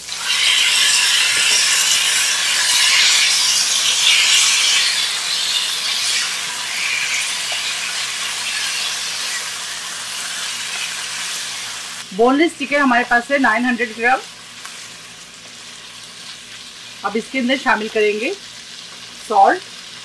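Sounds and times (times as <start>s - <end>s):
chicken sizzling in hot oil: 0.0s - 20.0s.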